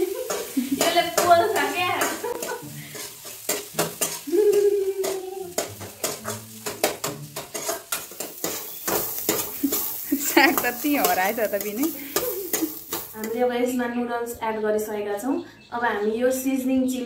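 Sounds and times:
woman laughing: 0.0 - 1.0, 2.1 - 2.6, 4.3 - 5.4, 9.6 - 10.8
light sizzle of frying: 0.0 - 13.7
metal spatula scraping a wok: 0.1 - 13.4.

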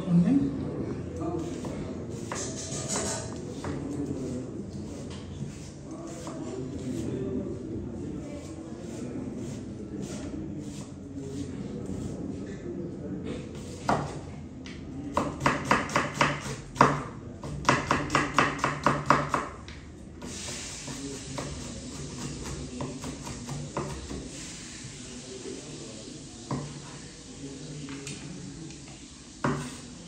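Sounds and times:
knife chopping on wooden board: 15.2 - 19.6
steady hiss: 20.2 - 30.0.

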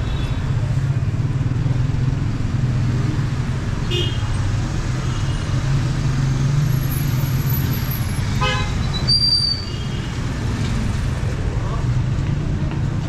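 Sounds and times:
traffic engines rumbling: 0.0 - 13.0
vehicle horn toot: 8.4 - 8.8.

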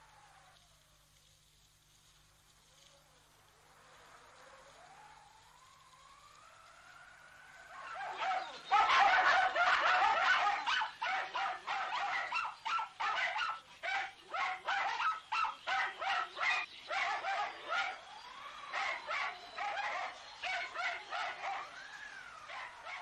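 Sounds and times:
dogs barking and yelping: 7.7 - 23.0.

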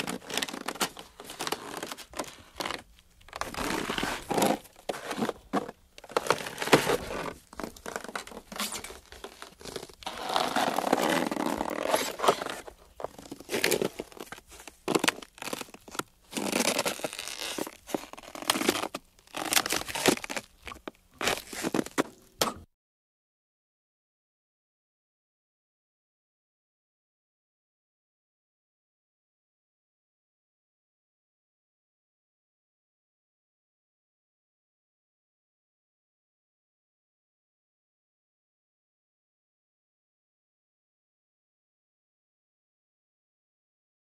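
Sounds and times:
ice crunching and cracking: 0.0 - 22.3.

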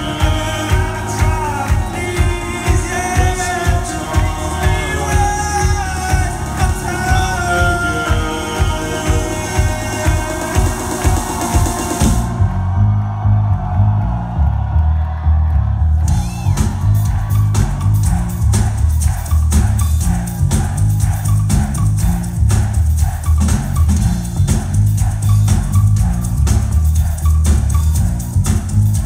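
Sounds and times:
indie rock band playing loudly: 0.0 - 12.4
drum kit beat: 0.0 - 12.7, 16.0 - 29.0
heavy bass line: 0.0 - 29.0.

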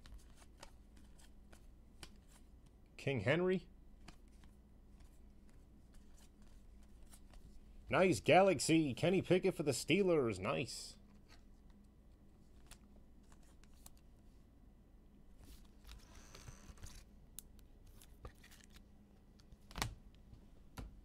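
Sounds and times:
trading cards handled: 0.0 - 2.7, 15.4 - 20.0.

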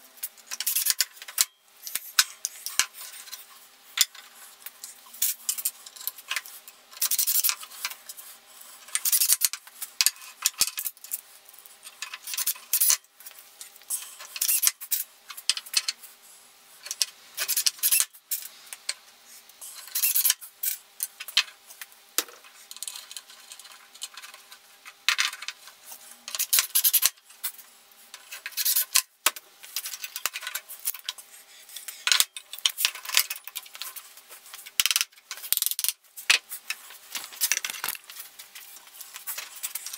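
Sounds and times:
wood and tool handling: 29.7 - 39.9.

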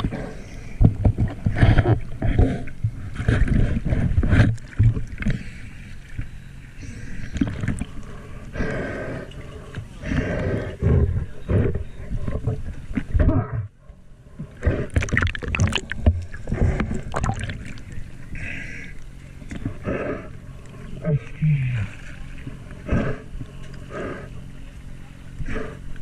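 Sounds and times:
water sloshing and splashing: 0.0 - 8.5, 14.3 - 18.4, 19.0 - 26.0.

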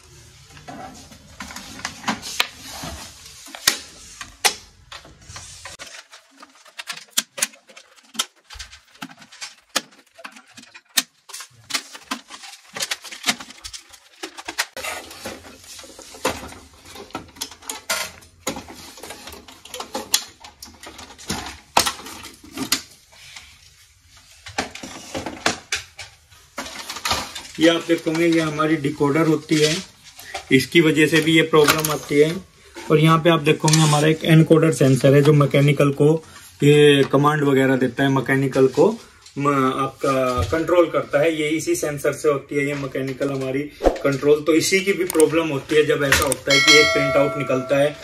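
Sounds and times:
plastic casing clicking and clattering: 5.8 - 14.8, 46.1 - 46.5.

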